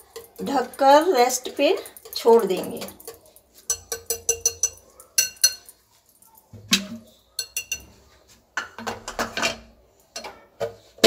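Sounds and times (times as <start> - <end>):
whisk clinking against glass bowl: 0.0 - 5.8, 6.7 - 8.0
kitchenware clattering: 0.0 - 11.0.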